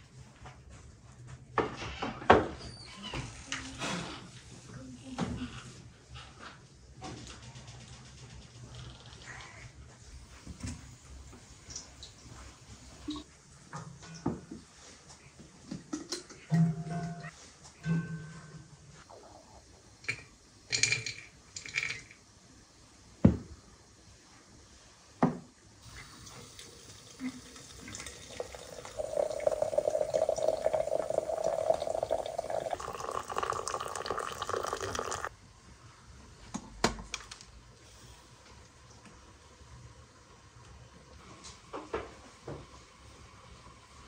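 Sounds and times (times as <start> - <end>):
liquid pouring into container: 25.9 - 35.3.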